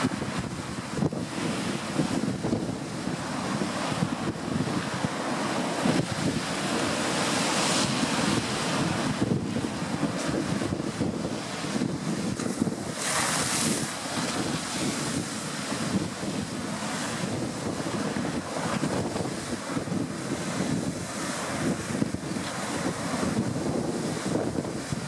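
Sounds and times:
storm waves breaking on sea wall: 0.0 - 25.0
wind buffeting microphone: 0.0 - 25.0.

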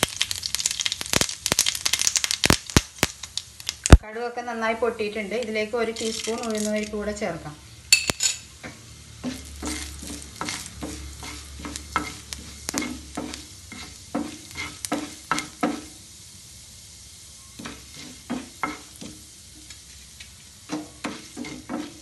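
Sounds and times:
frying sizzle: 0.0 - 22.0
spatula scraping a pan: 8.6 - 16.0, 17.5 - 22.0.

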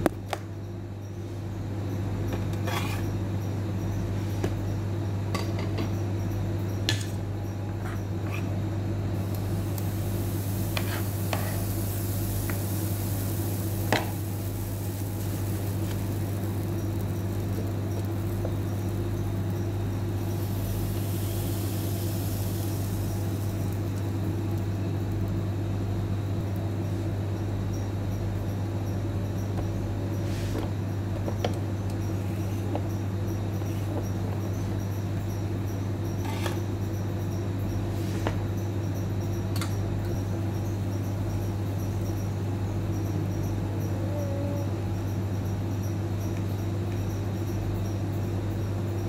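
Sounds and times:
appliance humming: 0.0 - 49.0
faint sizzling hiss: 9.1 - 26.5.

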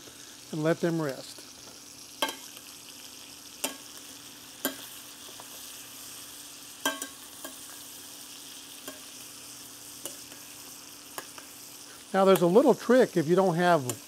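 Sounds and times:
steaks sizzling in butter: 0.0 - 14.0
metal spoon clinking against pan: 6.8 - 7.7, 8.8 - 9.2.

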